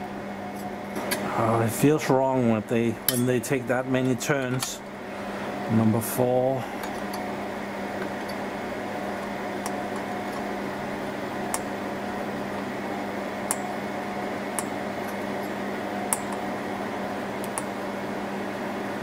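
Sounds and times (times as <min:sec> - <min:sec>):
fan hum: 0:00.0 - 0:19.0.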